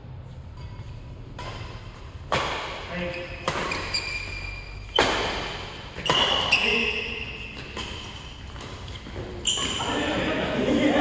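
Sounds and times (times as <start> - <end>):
racket hitting shuttlecock: 0.6 - 10.0
shoes squeaking on court: 3.1 - 10.2.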